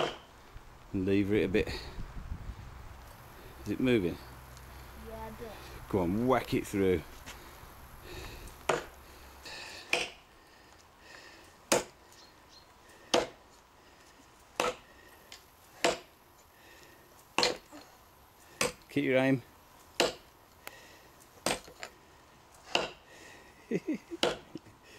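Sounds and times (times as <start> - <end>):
tomahawk chopping into log: 8.7 - 8.9, 11.7 - 12.0, 14.6 - 14.8, 15.8 - 16.1, 17.4 - 17.6, 18.6 - 18.8, 20.0 - 20.2, 21.4 - 21.8, 22.7 - 23.0.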